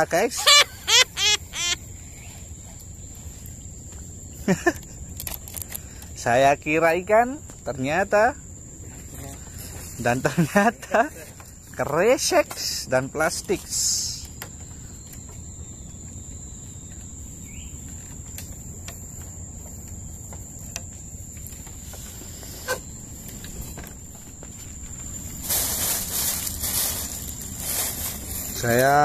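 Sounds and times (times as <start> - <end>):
insect droning: 0.0 - 29.0
low outdoor rumble: 14.1 - 29.0
hiss of noise: 23.3 - 29.0.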